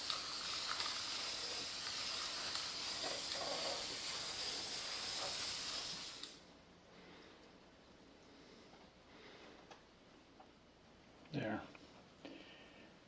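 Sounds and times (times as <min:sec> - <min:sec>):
aerosol can spraying hiss: 0:00.0 - 0:06.5.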